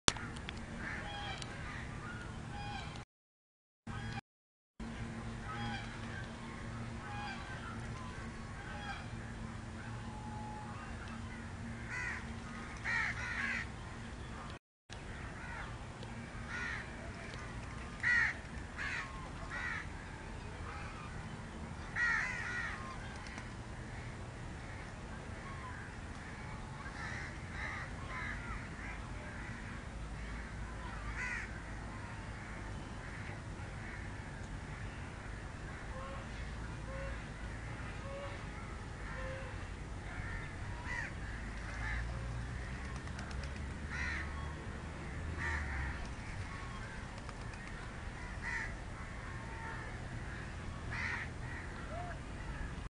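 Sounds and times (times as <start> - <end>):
steady low hum: 4.8 - 52.9
crows cawing: 11.8 - 13.7, 16.5 - 16.9, 18.0 - 19.9, 22.0 - 22.8, 25.7 - 31.7, 40.1 - 42.8, 43.9 - 44.3, 45.4 - 46.0, 48.2 - 52.6.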